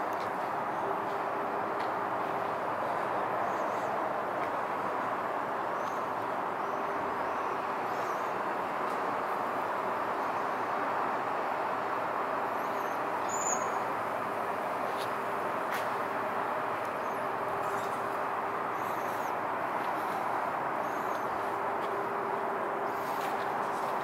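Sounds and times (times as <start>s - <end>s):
outdoor background hum: 0.0s - 24.0s
faint bird chirps: 12.6s - 13.8s.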